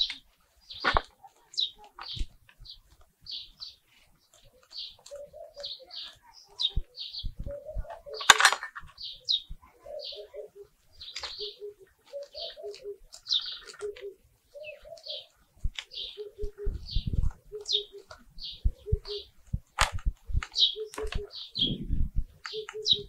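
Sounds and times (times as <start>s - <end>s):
faint knocks of soil being worked: 0.0s - 9.7s, 10.8s - 21.6s
small bird chirping: 0.0s - 23.0s
dove cooing: 4.3s - 19.6s, 20.2s - 23.0s.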